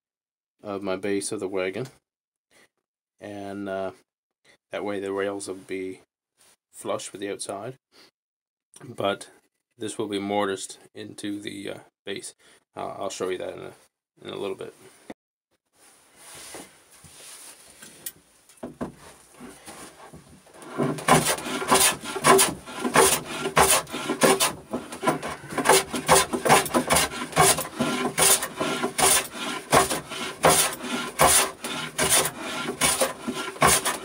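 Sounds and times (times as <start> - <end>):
hand plane scraping wood: 19.0 - 34.0.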